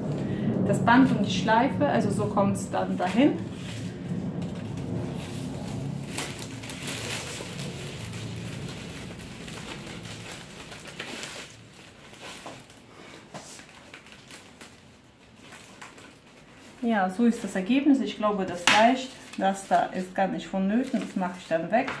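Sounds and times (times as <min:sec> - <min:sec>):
cellophane crinkling and rustling: 0:03.0 - 0:22.0.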